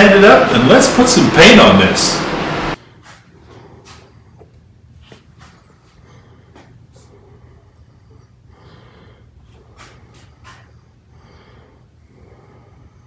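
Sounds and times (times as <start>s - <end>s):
low room hum: 0.0s - 13.0s
person breathing: 5.4s - 13.0s
short sharp sniffs: 9.7s - 10.7s.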